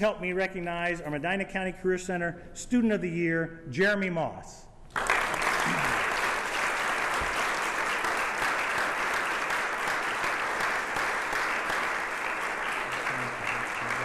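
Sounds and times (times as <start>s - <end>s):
audience applauding: 4.9s - 14.0s.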